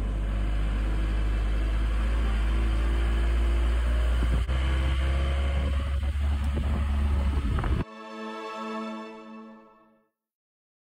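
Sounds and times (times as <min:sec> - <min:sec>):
car road and engine noise: 0:00.0 - 0:07.9.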